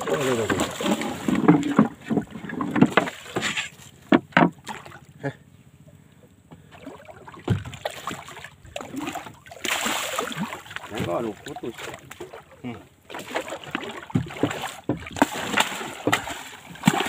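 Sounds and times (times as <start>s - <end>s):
stingray splashing at surface: 0.0s - 1.8s, 7.4s - 12.5s, 13.1s - 17.0s.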